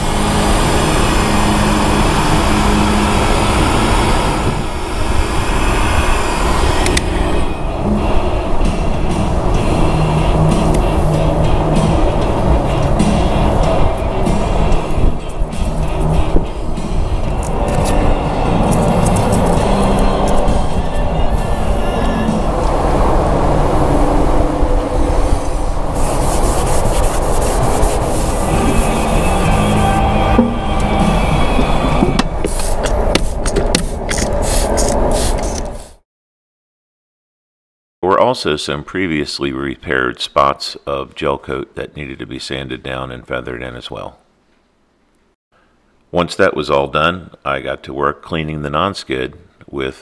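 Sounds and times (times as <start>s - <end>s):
heat gun blowing: 0.0s - 7.4s, 26.0s - 31.2s, 32.4s - 35.9s
low rumble: 0.0s - 32.4s
click: 6.8s - 7.1s
towel rubbing on fiberglass: 26.0s - 31.6s.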